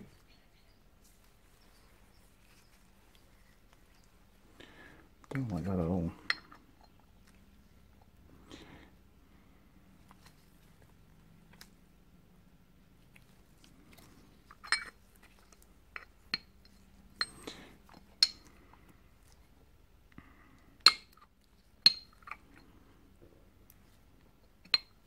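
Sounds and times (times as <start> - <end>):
metallic clicks and clinks: 14.5 - 15.0.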